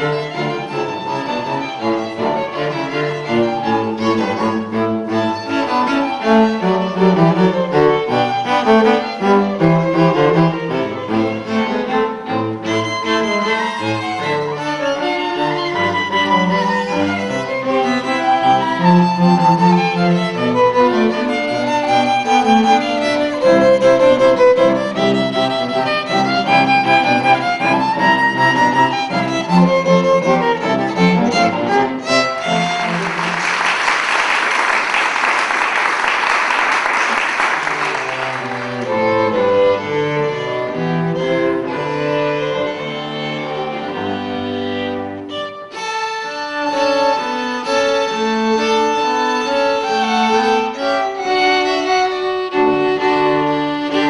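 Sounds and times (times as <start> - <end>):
string ensemble playing classical: 0.0 - 54.0
audience applause: 32.5 - 39.2.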